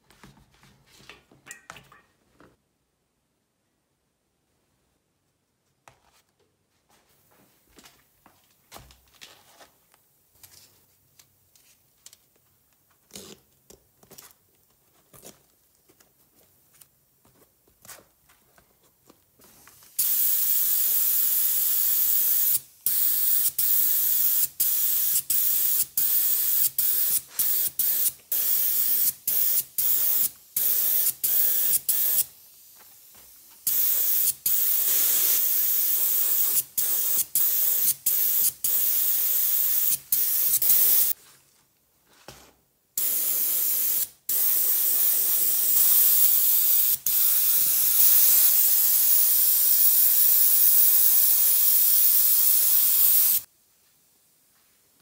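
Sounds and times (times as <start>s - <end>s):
pressurised spray hissing: 19.9s - 41.2s, 43.0s - 53.5s.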